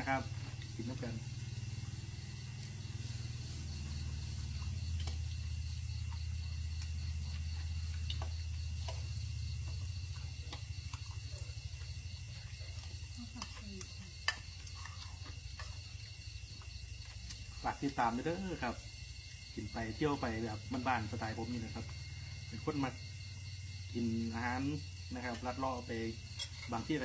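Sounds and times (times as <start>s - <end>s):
insects trilling: 0.0s - 27.0s
pork sizzling on a grill pan: 0.0s - 27.0s
metal tongs on a pan: 4.6s - 5.3s, 12.8s - 15.9s, 25.3s - 27.0s.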